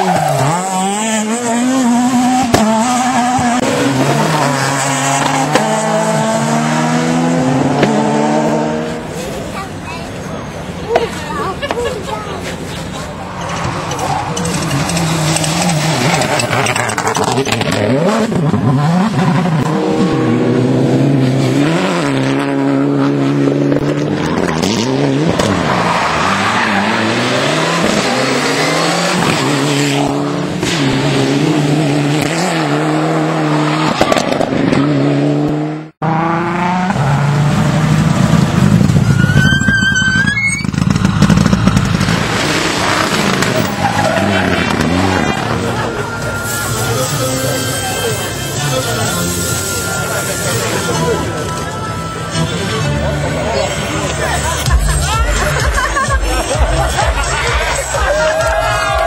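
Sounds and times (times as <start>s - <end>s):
rally car engine revving: 0.0s - 59.0s
brief high squeal: 39.1s - 40.7s.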